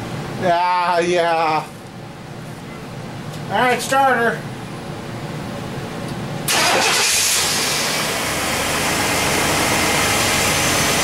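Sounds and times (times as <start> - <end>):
engine starting and idling: 6.5 - 11.0.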